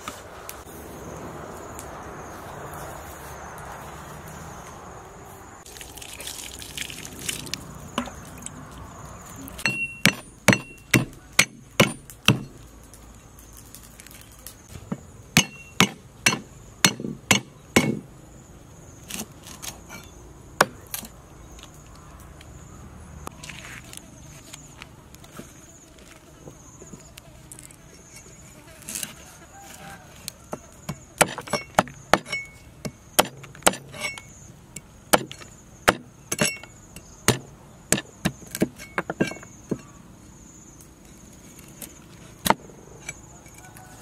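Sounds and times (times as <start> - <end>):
cleaver chopping on wooden block: 9.6 - 12.5, 14.9 - 18.0, 30.8 - 34.0, 35.1 - 36.6, 37.3 - 39.9.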